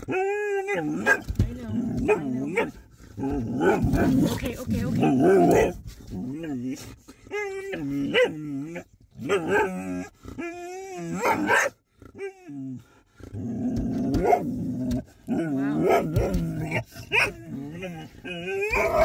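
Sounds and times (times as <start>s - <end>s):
dog growling: 0.0s - 19.0s
dog whining: 3.6s - 12.9s, 13.7s - 19.0s.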